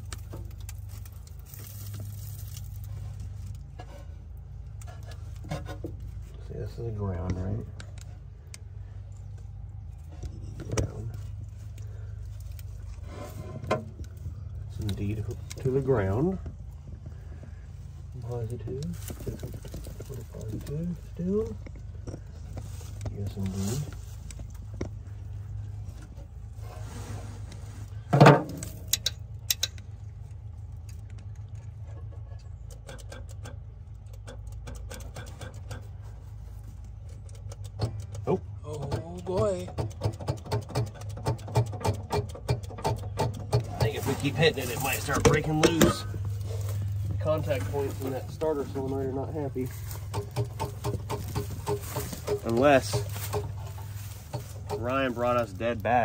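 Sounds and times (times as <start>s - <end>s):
steady low hum: 0.0s - 56.0s
starter solenoid clicking: 32.4s - 36.0s, 36.8s - 46.4s.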